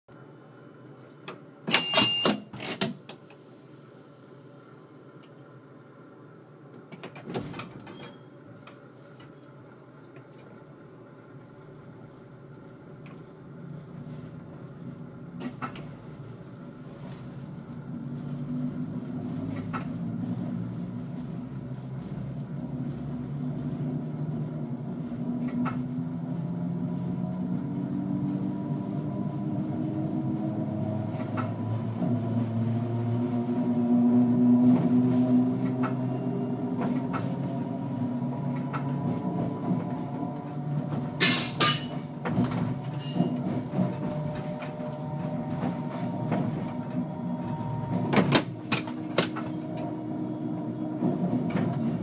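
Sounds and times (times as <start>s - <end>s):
train running rumble: 4.6s - 52.0s
electric train motor hum: 9.6s - 52.0s
wheels clicking over rail joints: 34.7s - 52.0s.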